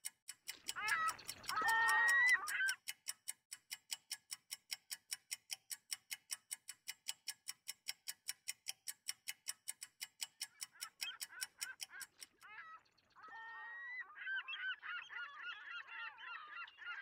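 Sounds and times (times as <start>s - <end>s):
rapid clock ticking: 0.0s - 12.5s
faint bird calls: 0.6s - 2.9s, 10.4s - 17.0s.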